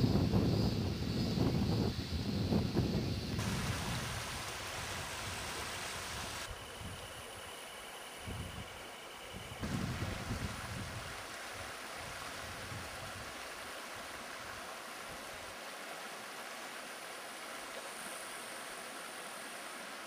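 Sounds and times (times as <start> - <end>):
low wind rumble on microphone: 0.0 - 7.3, 8.2 - 13.4
stream rushing over pebbles: 3.4 - 6.5, 9.6 - 20.0.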